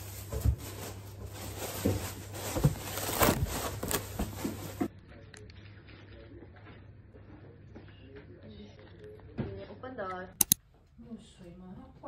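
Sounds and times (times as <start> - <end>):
shoe box rustling and knocking: 1.8 - 4.9.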